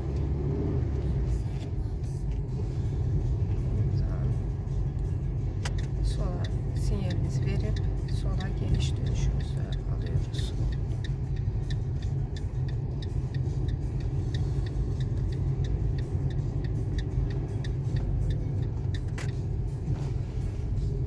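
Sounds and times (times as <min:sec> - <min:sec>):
car engine and tyres rumbling: 0:00.0 - 0:21.0
faint light ticks: 0:03.5 - 0:20.1.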